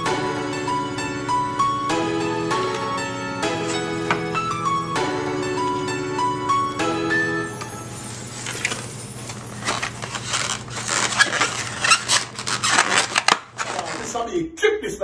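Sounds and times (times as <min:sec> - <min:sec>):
foam container squeaking crackling: 0:08.3 - 0:14.3.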